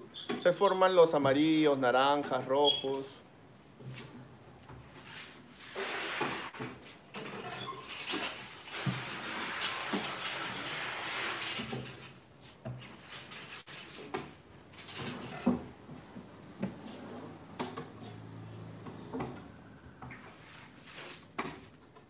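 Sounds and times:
squeegee scraping across screen: 0:05.0 - 0:06.6, 0:07.4 - 0:12.2, 0:20.2 - 0:21.8.

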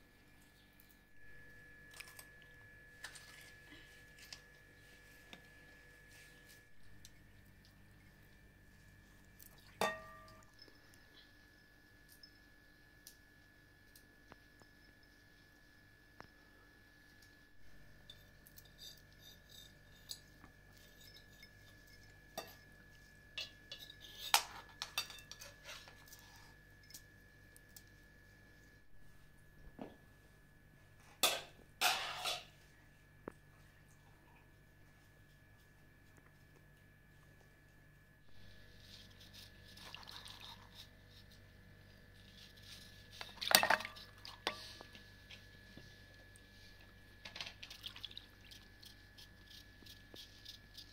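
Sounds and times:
dishes and utensils clinking: 0:09.8 - 0:10.4, 0:23.4 - 0:26.0, 0:31.2 - 0:32.5, 0:43.4 - 0:44.6.

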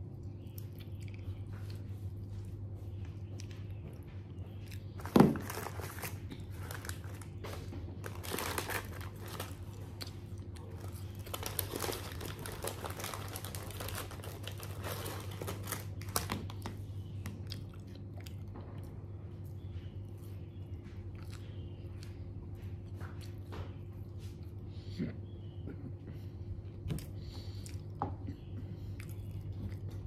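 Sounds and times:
chewing food: 0:00.0 - 0:30.0
steady low hum: 0:00.0 - 0:30.0
paper wrapper crinkling: 0:05.0 - 0:09.9, 0:10.6 - 0:16.6.

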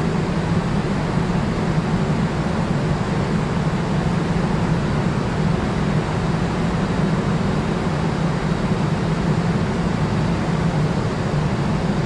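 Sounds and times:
constant low hum: 0:00.0 - 0:12.0.

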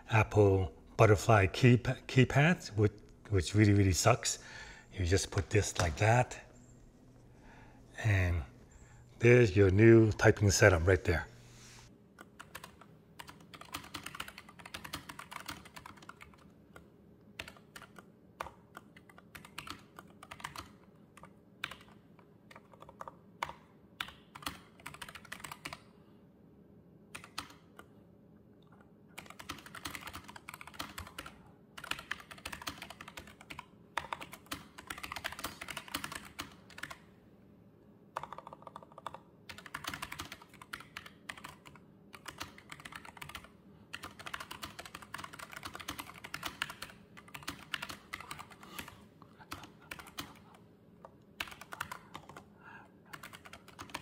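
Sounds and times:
mechanical keyboard typing: 0:12.3 - 0:16.8, 0:17.4 - 0:25.8, 0:27.1 - 0:27.9, 0:29.2 - 0:37.0, 0:38.2 - 0:48.9, 0:49.5 - 0:50.5, 0:51.4 - 0:52.4, 0:53.1 - 0:54.0.

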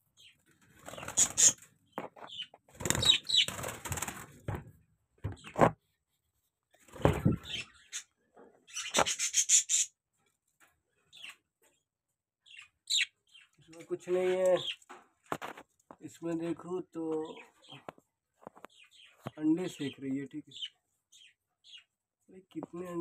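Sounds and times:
wings fluttering: 0:00.4 - 0:04.5, 0:06.8 - 0:07.7.

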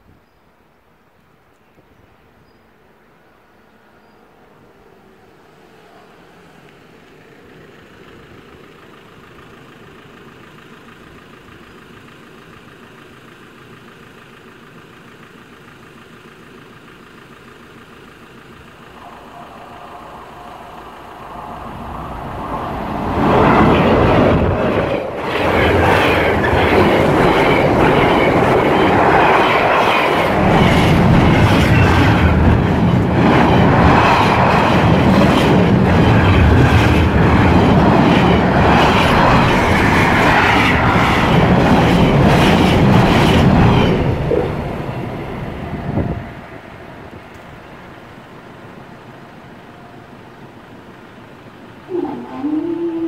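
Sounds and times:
freight train passing: 0:02.0 - 0:53.0
wheels clattering over rails: 0:18.5 - 0:48.8.

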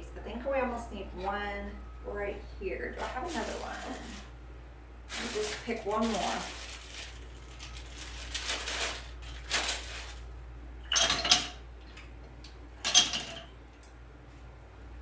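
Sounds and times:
artificial flowers rustling: 0:02.8 - 0:04.4, 0:05.0 - 0:10.4.

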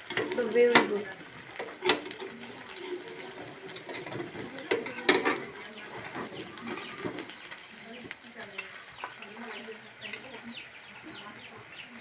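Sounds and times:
metal spoon scraping frying pan: 0:00.0 - 0:07.4
oil hissing: 0:00.0 - 0:12.0.

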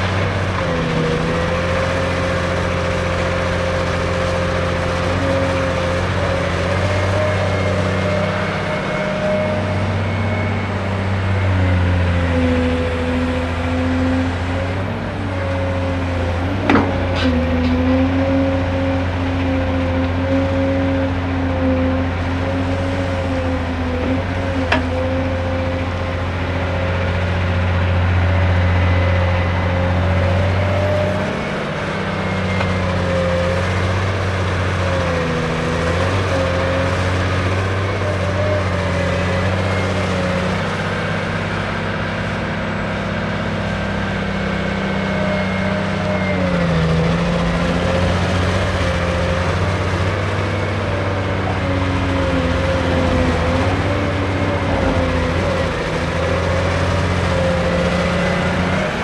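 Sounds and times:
excavator diesel engine: 0:00.0 - 0:59.0.

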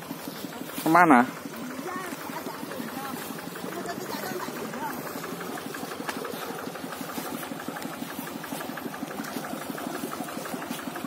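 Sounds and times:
hand tractor engine idling: 0:00.0 - 0:11.0.

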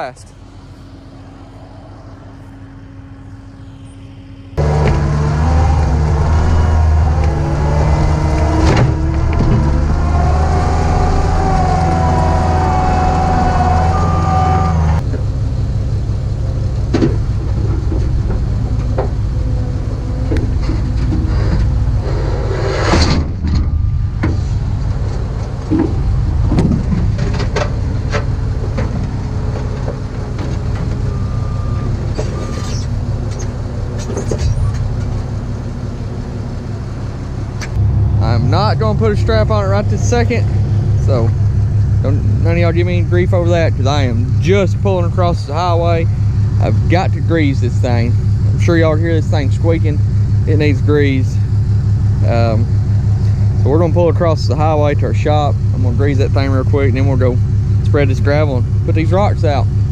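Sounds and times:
diesel engine running: 0:00.0 - 0:59.9
whines: 0:00.0 - 0:59.9
clanks and squeaks: 0:16.9 - 0:35.4.

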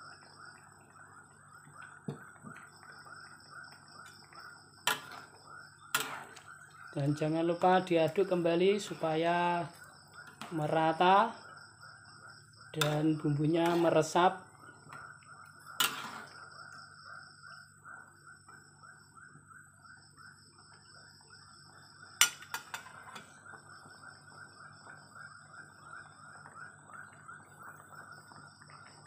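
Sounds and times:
stew bubbling in wok: 0:00.0 - 0:19.0.

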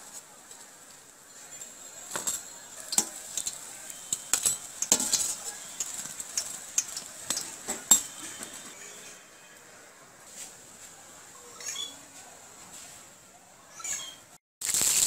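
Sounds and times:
hot oil sizzling: 0:00.0 - 0:08.8, 0:14.6 - 0:15.0
metal spoon scraping pan and plate: 0:01.5 - 0:08.7.

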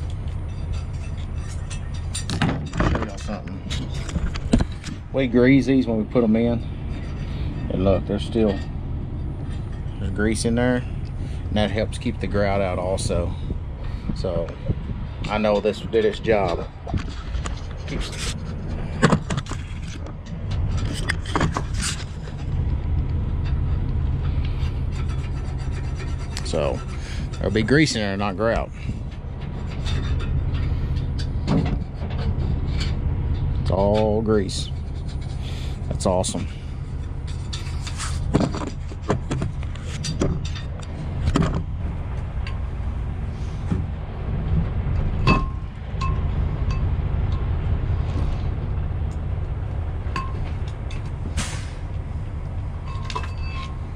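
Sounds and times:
metal parts clicking and knocking: 0:00.0 - 0:05.0
metal knocks and scrapes: 0:00.0 - 0:48.8, 0:52.8 - 0:53.9
engine running: 0:00.0 - 0:53.9
steady low rumble: 0:00.0 - 0:53.9.

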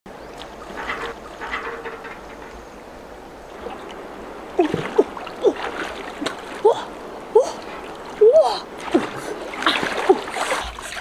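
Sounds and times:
water splashing from swimming: 0:03.5 - 0:11.0.

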